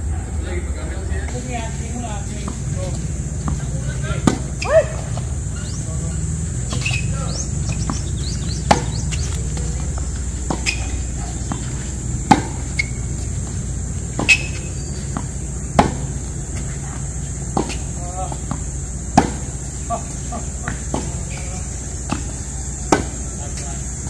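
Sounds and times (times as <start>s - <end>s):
tennis ball struck with rackets: 3.4s - 5.7s, 6.6s - 19.7s, 20.6s - 23.6s.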